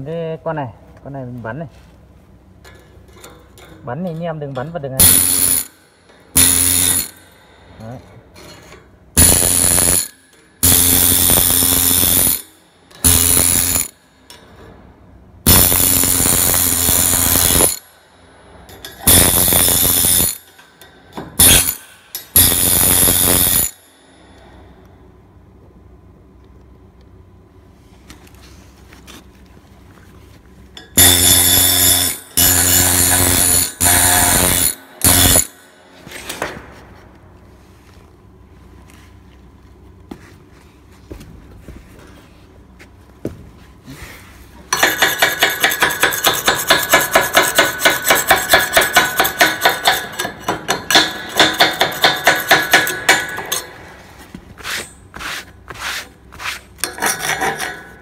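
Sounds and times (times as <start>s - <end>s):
welding arc crackling and buzzing: 5.0s - 5.8s, 6.4s - 7.3s, 9.2s - 14.0s, 15.5s - 17.9s, 18.9s - 20.6s, 21.4s - 23.8s, 31.0s - 35.7s.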